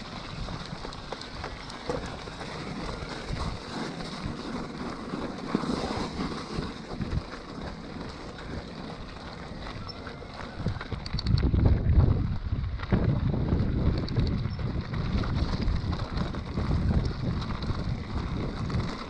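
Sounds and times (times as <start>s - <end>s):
tyres crunching on gravel: 0.0s - 19.0s
wind buffeting microphone: 1.4s - 19.0s
small clicks and rattles: 7.1s - 11.7s, 13.8s - 19.0s.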